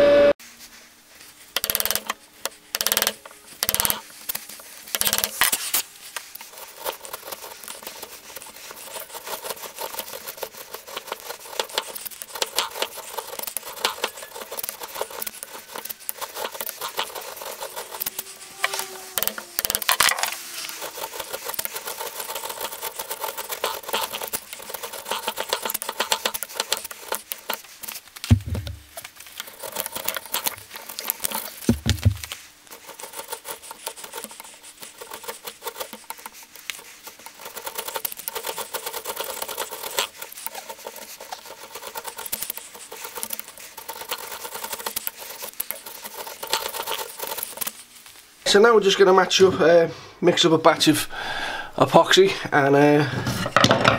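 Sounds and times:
chisel scraping cuts on wood: 0:06.6 - 0:27.6
low thump: 0:28.3 - 0:28.9.

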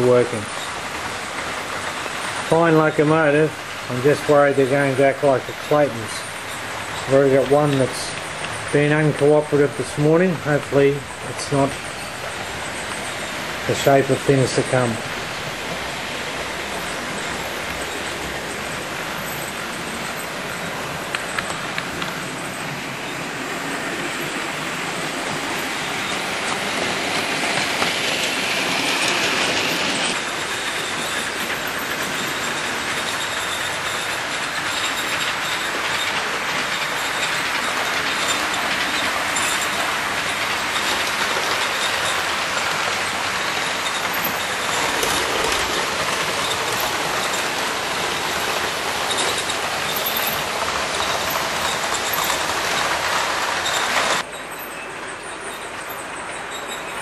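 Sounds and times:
clicking over rail joints: 0:00.0 - 0:57.0
model train motor whirring: 0:25.4 - 0:54.3.

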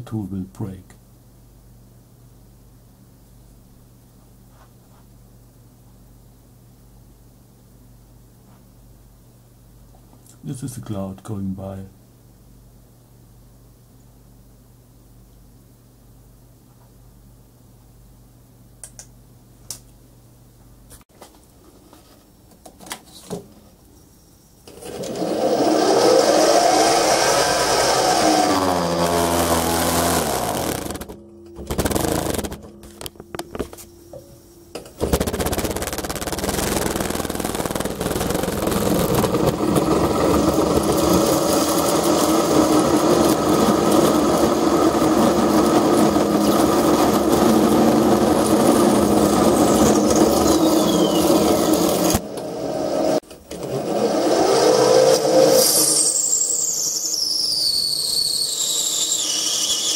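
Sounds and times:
lathe spindle motor: 0:24.7 - 0:32.6, 0:35.0 - 0:59.9
parting tool cutting metal: 0:25.0 - 0:33.5, 0:35.0 - 0:41.8.

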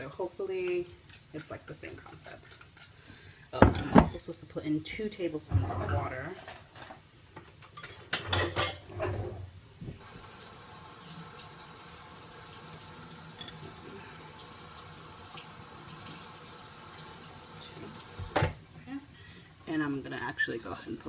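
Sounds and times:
kitchen tap running: 0:10.0 - 0:18.6.

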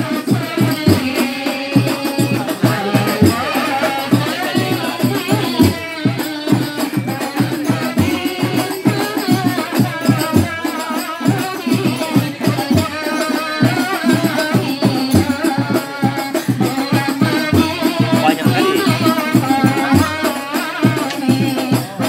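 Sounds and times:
frame drums with jingles: 0:00.0 - 0:22.0.

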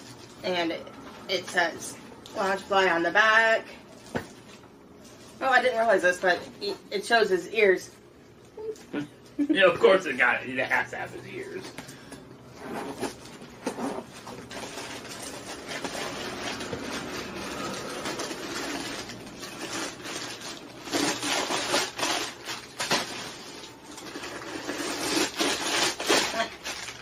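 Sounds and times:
packing material rustling: 0:12.8 - 0:27.0
clicks and crinkles: 0:12.9 - 0:27.0.

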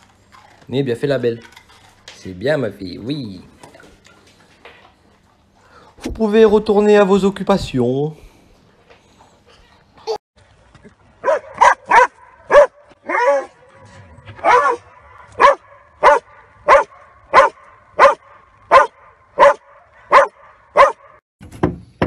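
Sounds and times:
dog barking: 0:11.2 - 0:13.7, 0:14.4 - 0:21.2.

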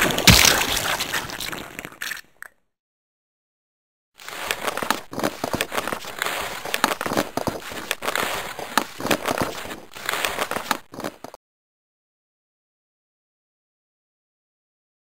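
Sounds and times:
dense crackling and crinkling: 0:00.0 - 0:02.5, 0:04.2 - 0:11.4.

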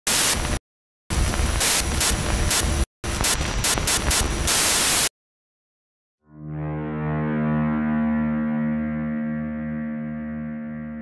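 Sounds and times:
thin high whine: 0:06.3 - 0:11.0.

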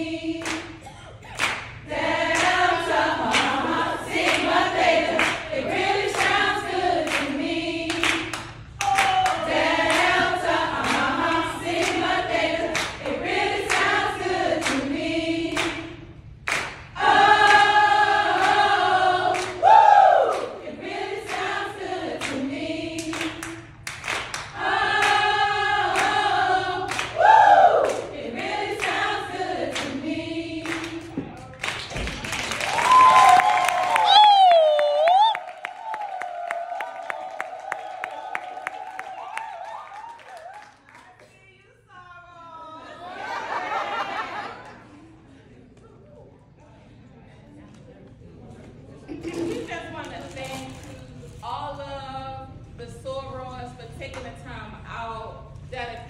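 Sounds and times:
women singing and chanting: 0:00.0 - 0:16.1, 0:17.0 - 0:23.7, 0:24.6 - 0:31.5
sharp hand claps: 0:00.4 - 0:00.7, 0:01.4 - 0:01.7, 0:07.9 - 0:10.2, 0:16.5 - 0:16.8, 0:23.1 - 0:25.2, 0:30.7 - 0:41.1.

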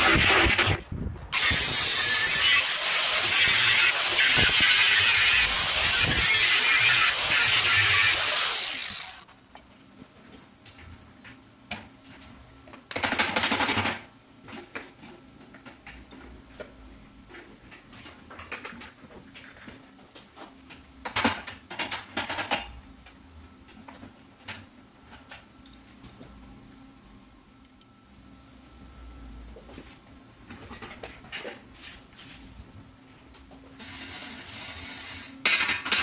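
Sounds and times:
angle grinder spinning down: 0:01.3 - 0:09.2.

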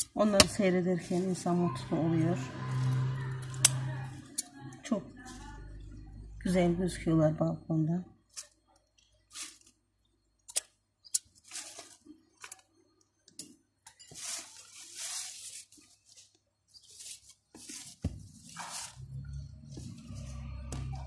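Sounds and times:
rustling: 0:14.0 - 0:21.0.

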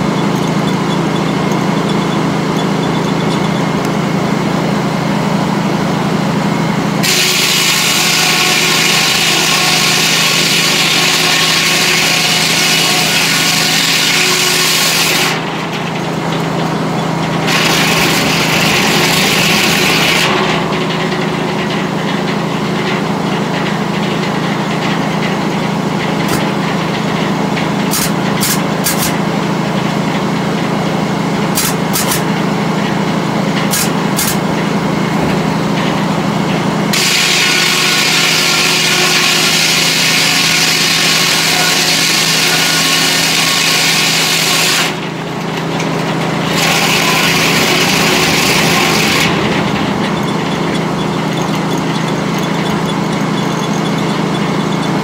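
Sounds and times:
circular saw cutting log: 0:00.0 - 0:06.4, 0:07.0 - 0:23.1, 0:24.4 - 0:30.2, 0:31.2 - 0:55.0
sawmill machinery humming: 0:00.0 - 0:55.0.

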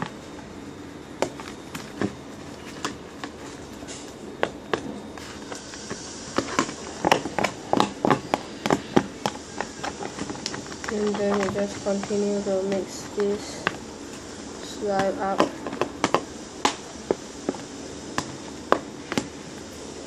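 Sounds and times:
utensil tapping plastic box: 0:06.6 - 0:13.8.

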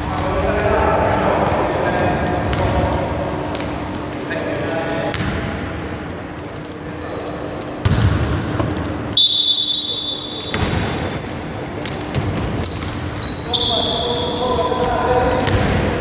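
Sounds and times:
sneakers squeaking: 0:00.0 - 0:04.5, 0:06.2 - 0:16.0
basketball bouncing on floor: 0:07.8 - 0:08.8, 0:10.5 - 0:11.0, 0:12.1 - 0:12.8.

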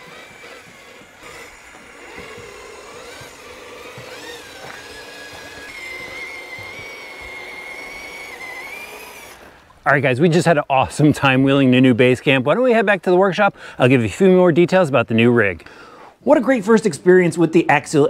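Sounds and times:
toy car motor whining: 0:00.0 - 0:09.5.

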